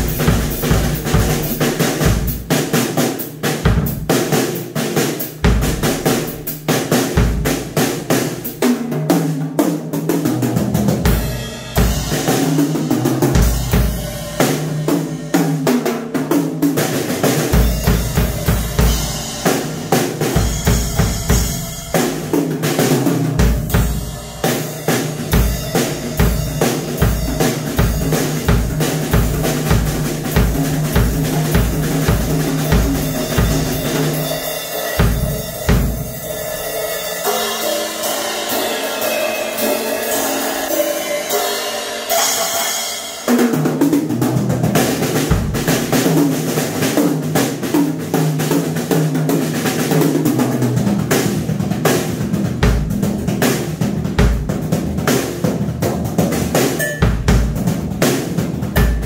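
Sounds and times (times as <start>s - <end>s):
drum kit beat: 0.0s - 59.0s
bass drum kicking: 25.3s - 34.2s, 35.0s - 36.2s, 45.3s - 45.9s, 58.7s - 59.0s.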